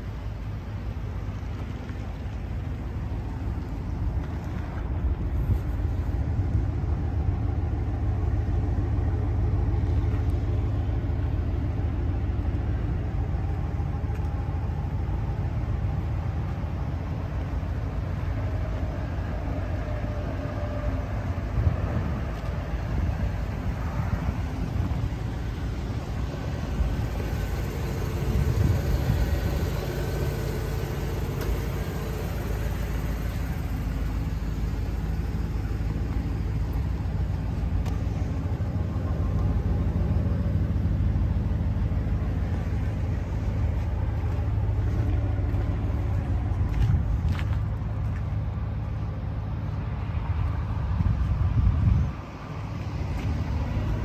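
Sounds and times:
vehicle engine rumble: 0.0s - 54.0s
wind on microphone: 50.8s - 52.3s.

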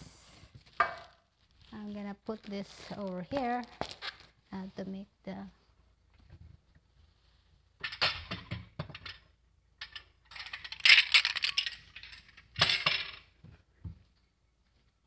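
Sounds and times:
kitchen utensils clinking and rattling: 9.8s - 13.3s.

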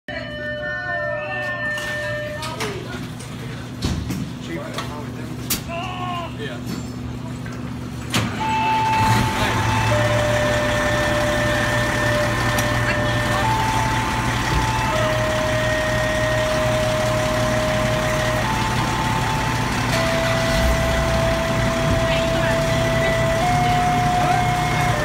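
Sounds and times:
diesel engine idling: 7.1s - 25.0s.

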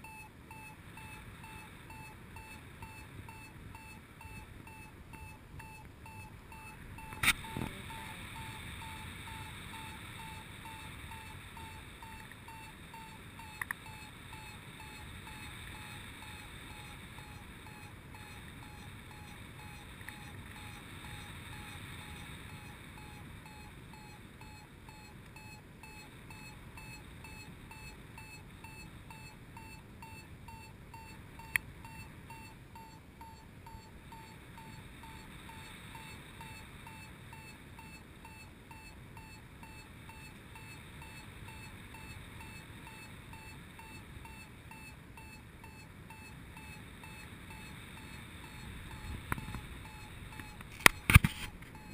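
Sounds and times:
variometer beeping: 0.0s - 51.9s
sharp clicks: 50.4s - 51.8s.

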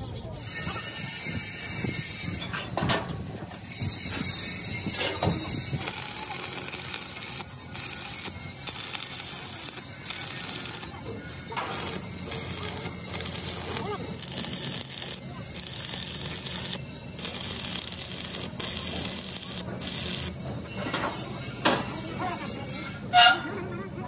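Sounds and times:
welding arc crackling and hissing: 3.6s - 22.0s.

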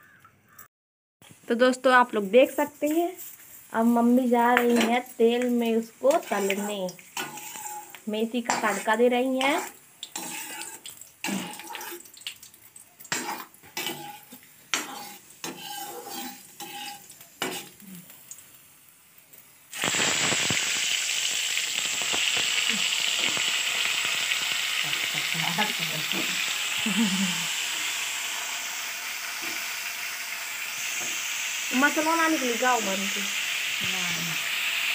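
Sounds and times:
hot oil sizzling: 1.5s - 34.9s
metal utensils clinking on a pan: 4.6s - 11.9s, 13.1s - 17.8s.

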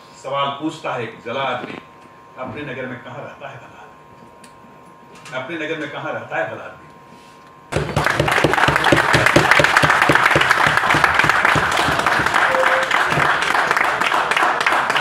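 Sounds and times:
crowd applauding: 7.8s - 15.0s.

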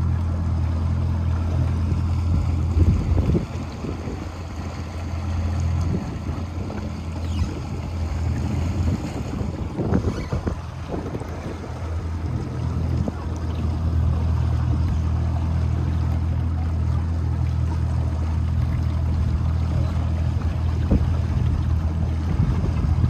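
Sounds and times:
boat motor droning: 0.0s - 23.0s
water around hull: 0.0s - 23.0s.

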